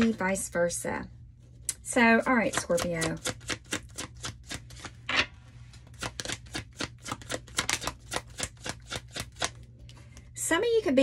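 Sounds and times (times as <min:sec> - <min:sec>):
cards being shuffled: 0:02.5 - 0:09.6.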